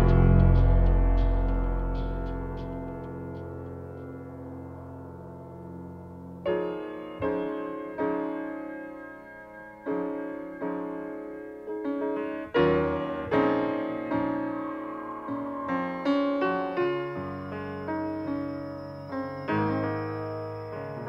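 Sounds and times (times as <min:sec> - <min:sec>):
low keyboard drone: 0:00.0 - 0:06.2.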